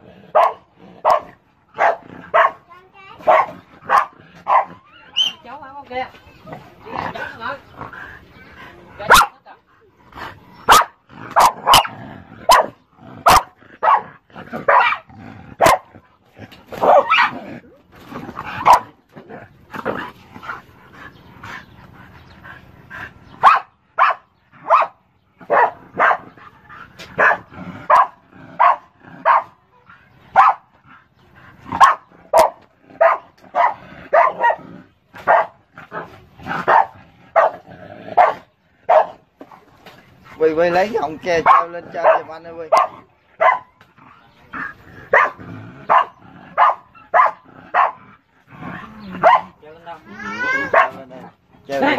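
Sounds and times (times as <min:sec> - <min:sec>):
dog barking: 0:00.3 - 0:02.6, 0:03.2 - 0:05.4, 0:09.0 - 0:09.4, 0:10.7 - 0:11.9, 0:12.5 - 0:15.9, 0:16.8 - 0:17.4, 0:18.6 - 0:18.9, 0:23.4 - 0:26.4, 0:27.2 - 0:29.6, 0:30.3 - 0:30.7, 0:31.7 - 0:34.6, 0:35.2 - 0:37.6, 0:38.2 - 0:39.2, 0:41.4 - 0:43.7, 0:45.1 - 0:48.0, 0:49.2 - 0:49.6, 0:50.7 - 0:51.1.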